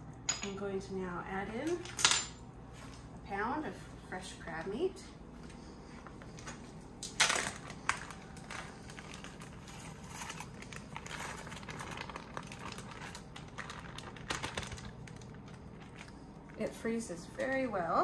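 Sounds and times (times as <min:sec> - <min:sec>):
sharp plastic crackles: 0:06.2 - 0:17.7
plastic bag crinkling: 0:06.2 - 0:17.8.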